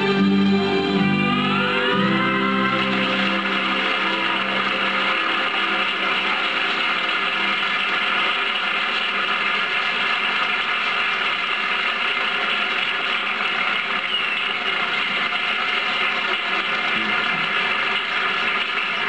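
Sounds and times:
song ending: 0:00.0 - 0:08.2
audience applauding: 0:00.0 - 0:19.0.

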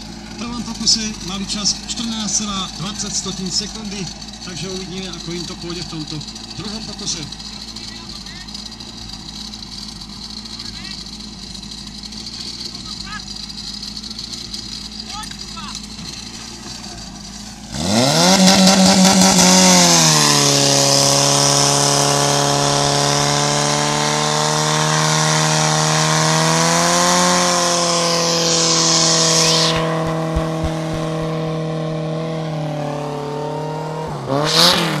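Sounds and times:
pump engine revving: 0:00.0 - 0:35.0
high hiss: 0:28.2 - 0:30.7.

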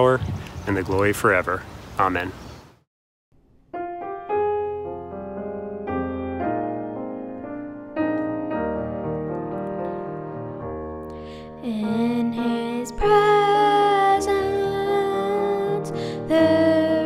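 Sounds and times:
slow piano chords: 0:03.6 - 0:17.0
person singing: 0:11.4 - 0:17.0.

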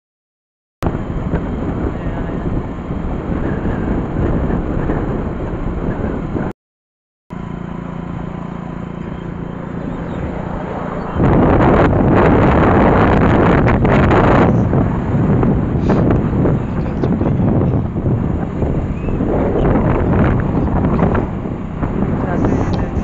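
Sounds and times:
wind buffeting microphone: 0:00.8 - 0:06.5, 0:08.8 - 0:23.0
low mechanical hum: 0:07.3 - 0:23.0.

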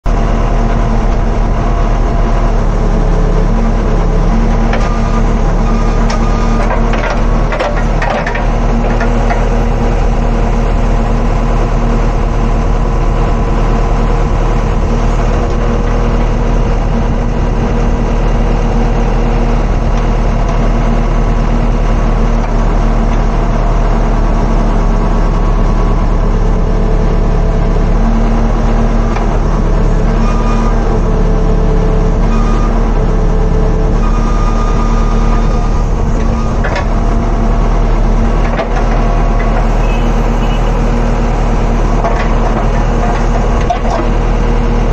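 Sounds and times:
diesel engine under load: 0:00.0 - 0:44.9
hydraulic arm working: 0:28.1 - 0:44.9.

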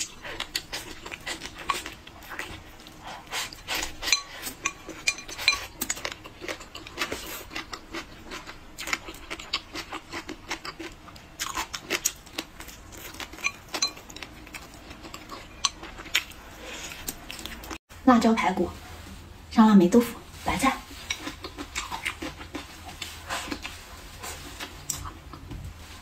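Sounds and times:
chewing: 0:00.0 - 0:17.8, 0:20.9 - 0:25.6.

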